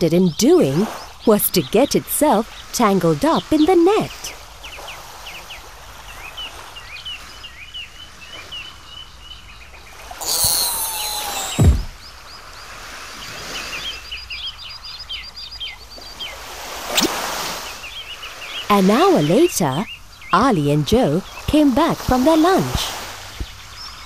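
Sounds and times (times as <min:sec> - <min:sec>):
birds chirping: 0:00.0 - 0:24.0
falling tone into low thump: 0:10.3 - 0:12.0.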